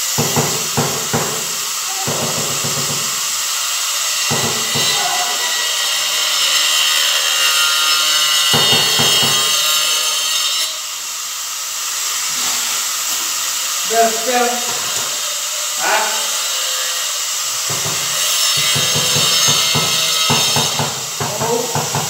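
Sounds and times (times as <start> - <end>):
tiles scraping on mortar: 12.1 - 13.5.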